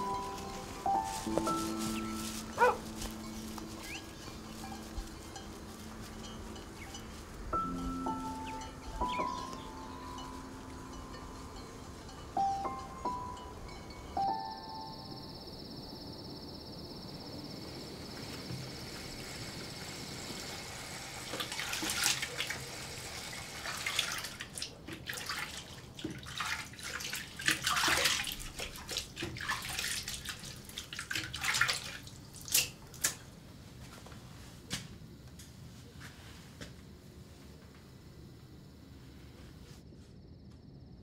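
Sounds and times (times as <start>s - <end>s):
night insects chirring: 0.0s - 41.0s
water splashing at a sink: 20.2s - 33.2s.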